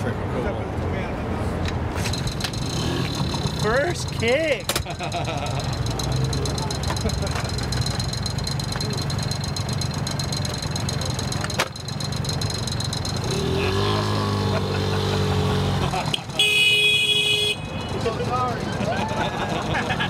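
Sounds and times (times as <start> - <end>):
two-stroke engine buzzing: 2.0 - 20.0
horn sounding: 16.1 - 18.2.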